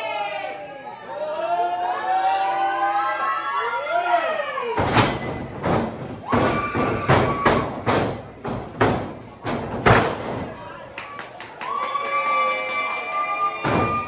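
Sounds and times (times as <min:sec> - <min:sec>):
heavy thuds on wrestling ring: 0:04.8 - 0:10.6, 0:13.6 - 0:14.0.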